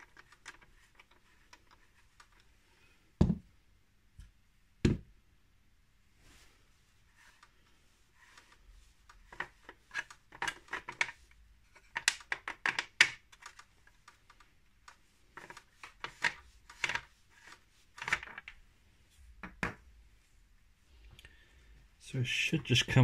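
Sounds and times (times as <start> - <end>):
hard plastic clicking and rattling: 11.8 - 18.5.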